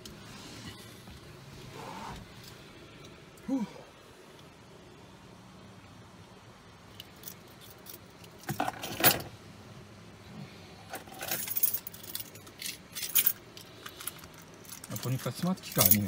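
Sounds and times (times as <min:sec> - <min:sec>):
keys jangling: 0:11.0 - 0:16.0.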